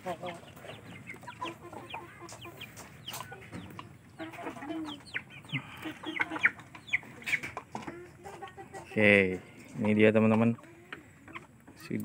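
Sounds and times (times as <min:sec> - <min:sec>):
chicks clucking and peeping: 0:00.0 - 0:12.0.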